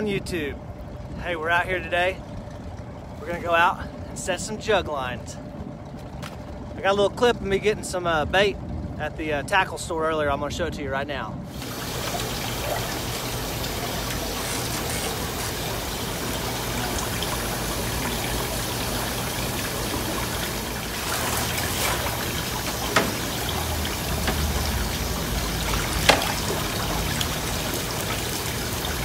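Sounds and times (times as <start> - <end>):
water running and trickling: 11.5 - 29.0
dip net splashing in water: 20.9 - 28.2.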